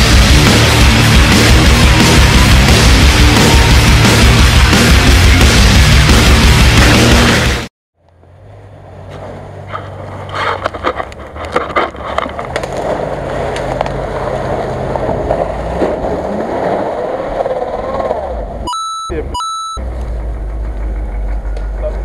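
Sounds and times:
off-road vehicle engine under load: 0.0s - 7.4s, 8.0s - 22.0s
tyres splashing water and mud: 10.3s - 17.2s.

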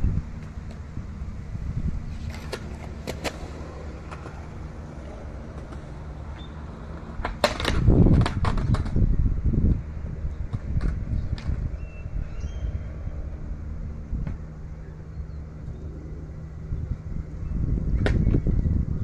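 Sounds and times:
skateboard grinding rumble: 0.0s - 11.8s
wind rumble on microphone: 0.0s - 19.0s
skateboard clicks: 2.2s - 9.1s, 10.4s - 11.7s
skateboard cracks on ledge: 7.2s - 9.0s.

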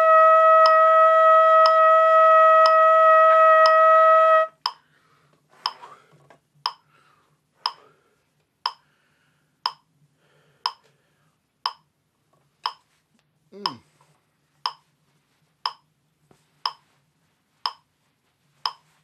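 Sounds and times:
trumpet long tone: 0.0s - 4.6s
metronome clicking: 4.6s - 4.8s, 9.6s - 9.8s, 11.6s - 11.9s, 12.6s - 12.8s, 14.6s - 14.8s, 15.6s - 15.8s, 16.6s - 16.8s, 17.6s - 17.8s, 18.6s - 18.8s.

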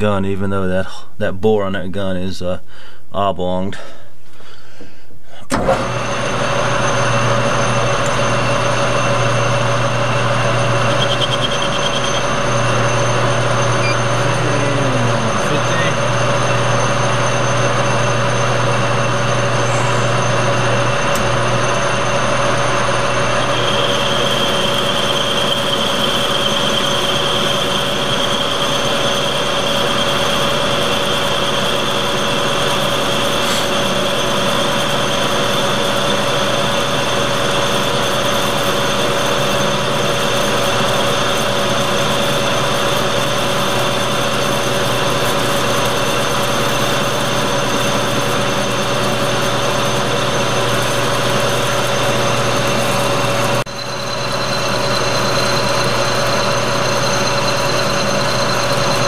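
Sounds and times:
metal lathe running: 5.5s - 59.0s
thin high whine: 6.7s - 36.9s, 47.4s - 59.0s.

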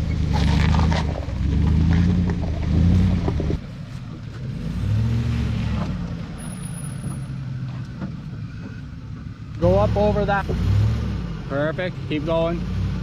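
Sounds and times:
loud engine rumble: 0.0s - 13.0s
truck engine revving: 0.0s - 13.0s.

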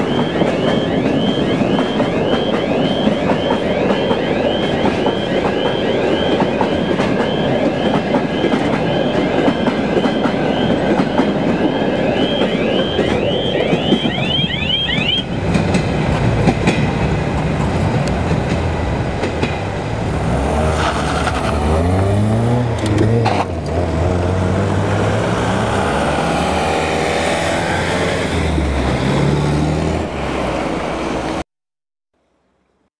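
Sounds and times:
car engine accelerating: 20.0s - 30.0s.

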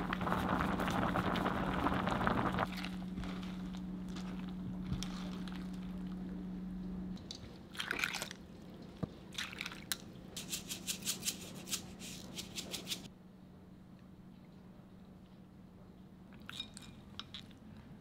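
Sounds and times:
soup boiling: 0.0s - 6.2s
cooktop hum: 0.0s - 8.3s, 10.3s - 13.1s
liquid sounds of soup: 0.0s - 10.4s.

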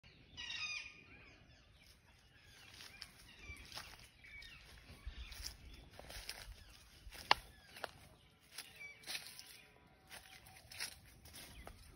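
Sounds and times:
birds chirping: 0.0s - 11.9s
soft footsteps: 2.5s - 11.9s.

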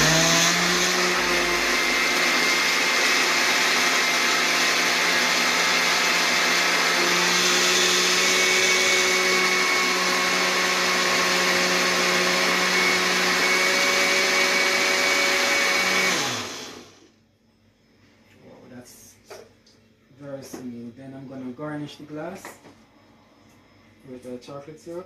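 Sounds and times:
blender blending ice: 0.0s - 17.1s.

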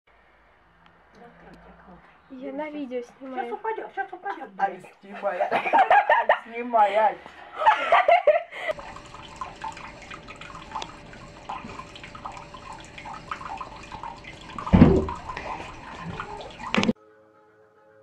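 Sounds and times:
tap trickling into basin: 8.7s - 17.0s.

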